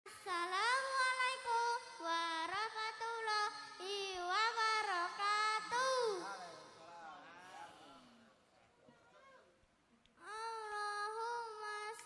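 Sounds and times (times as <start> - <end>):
boy singing into microphone: 0.1 - 6.8, 10.2 - 12.0.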